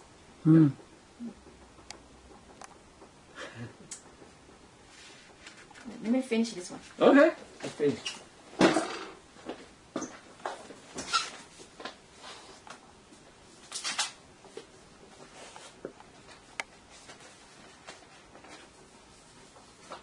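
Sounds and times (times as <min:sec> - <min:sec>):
brush swishing across paper: 0:04.9 - 0:06.0.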